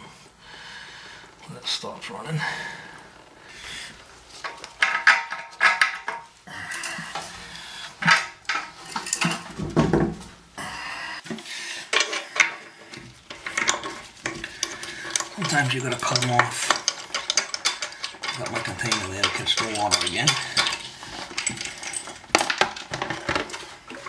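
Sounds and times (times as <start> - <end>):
tools clinking on bolts: 4.4 - 7.2, 8.0 - 9.5, 11.9 - 24.0.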